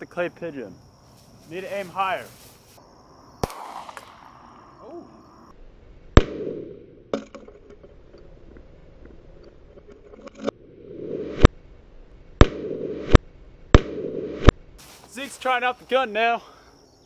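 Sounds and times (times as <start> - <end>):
pistol shots with echo: 3.4 - 4.4.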